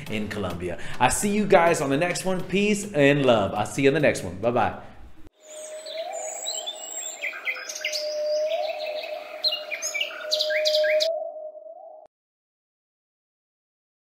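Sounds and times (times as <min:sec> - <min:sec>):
birds chirping and whistling: 0:05.4 - 0:12.1.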